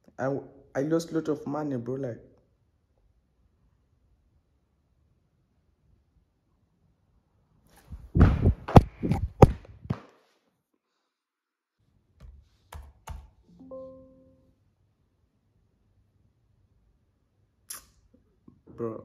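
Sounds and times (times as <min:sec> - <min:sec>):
loud thumps and knocks: 0:08.0 - 0:10.1.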